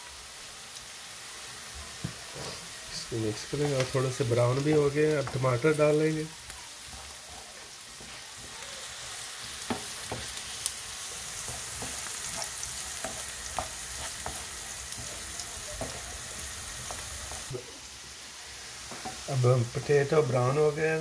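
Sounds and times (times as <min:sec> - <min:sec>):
vegetables sizzling in oil: 0:00.0 - 0:21.0
wooden spatula scraping pan: 0:02.0 - 0:05.8, 0:11.2 - 0:17.6.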